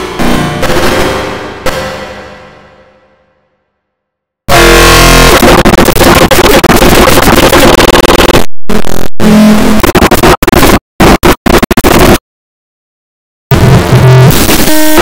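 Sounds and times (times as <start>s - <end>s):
loud distorted noise: 0.0s - 3.5s, 4.5s - 12.2s, 13.5s - 15.0s
pitched tones: 4.5s - 9.8s.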